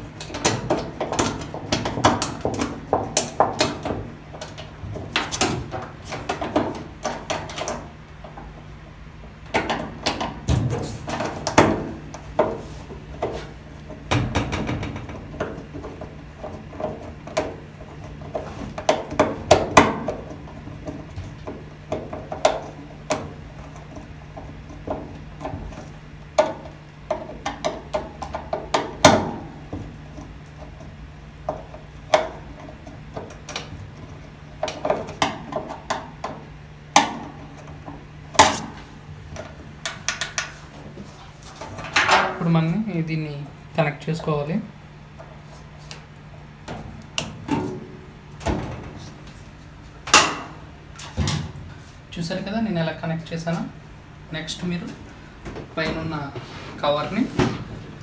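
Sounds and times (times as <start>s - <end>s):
low steady hum: 0.0s - 58.0s
plastic clicking against sheet metal: 0.1s - 8.5s.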